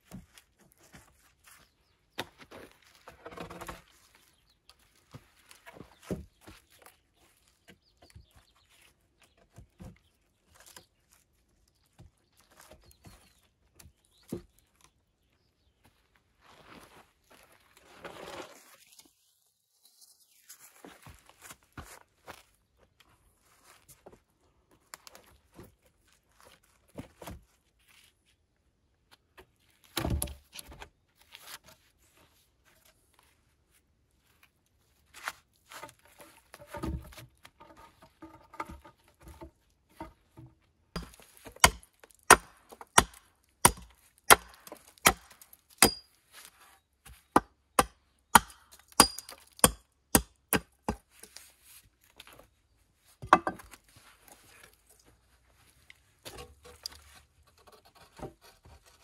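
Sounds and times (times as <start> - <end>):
logs set down with knocks: 29.4 - 30.9, 35.7 - 46.0, 53.2 - 53.9
hatchet chopping wood: 41.0 - 46.1, 47.3 - 51.2.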